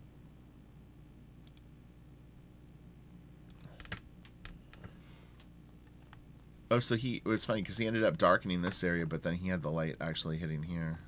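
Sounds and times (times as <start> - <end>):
faint low hum: 0.0 - 11.0
computer mouse clicks: 1.4 - 1.7, 3.5 - 6.2.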